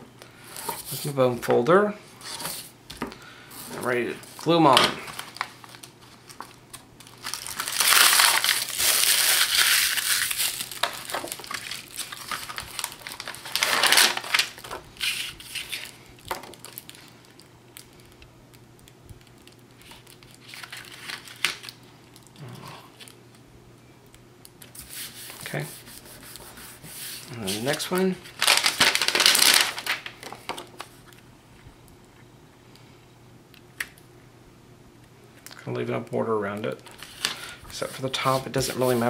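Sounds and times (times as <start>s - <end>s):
paper and plastic film crinkling: 3.6s - 18.2s, 19.2s - 22.3s, 27.1s - 31.2s, 36.8s - 39.0s.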